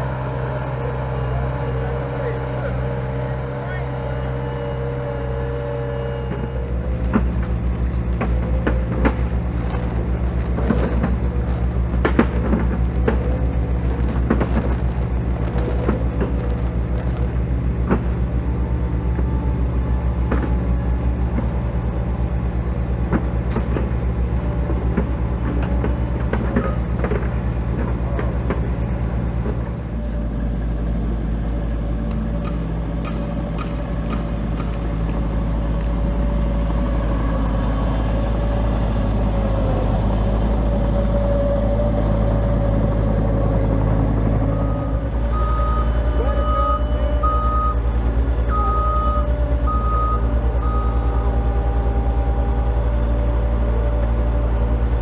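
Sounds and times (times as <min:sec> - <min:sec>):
concrete tumbling in drum: 0:07.0 - 0:17.4.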